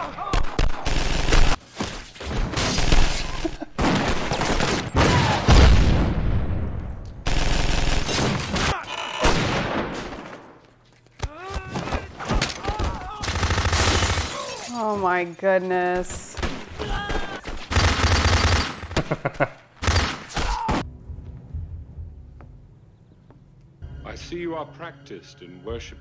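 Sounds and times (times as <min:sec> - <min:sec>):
gunfire volley: 0:07.3 - 0:10.4.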